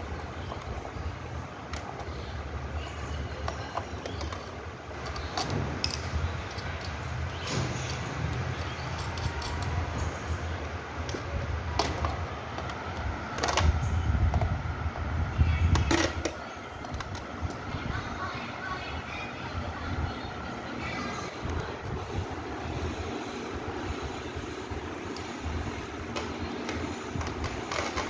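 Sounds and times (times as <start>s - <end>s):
steady low rumble: 0.0s - 28.0s
metal parts clicking and knocking: 3.4s - 10.0s.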